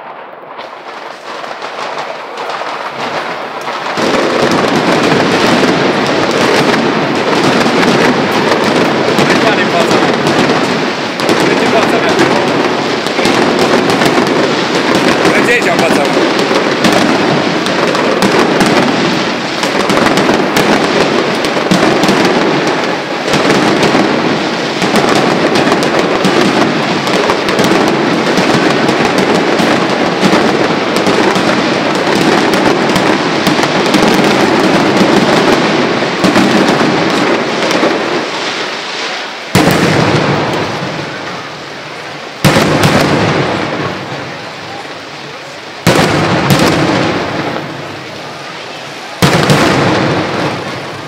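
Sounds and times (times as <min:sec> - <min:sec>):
rapid firecracker explosions: 0:00.0 - 0:51.0.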